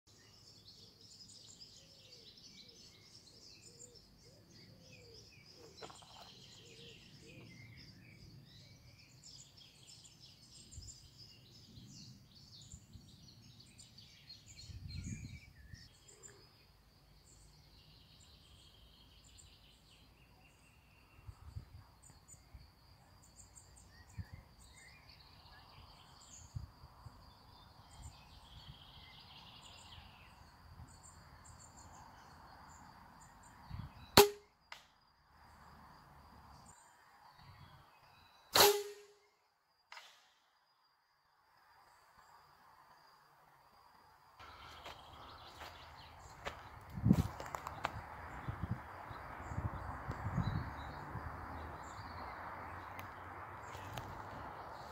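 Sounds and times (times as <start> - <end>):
faint birdsong: 0.1 - 54.9.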